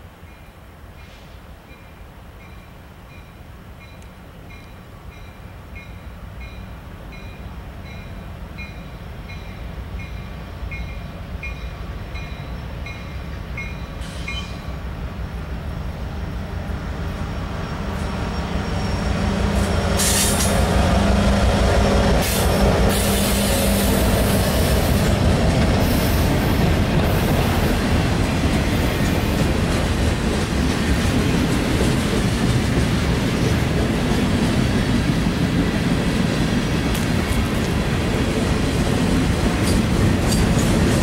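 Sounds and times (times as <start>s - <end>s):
wheels squealing on rail: 7.2s - 14.8s, 17.0s - 25.2s
freight cars rumbling on rails: 8.8s - 41.0s.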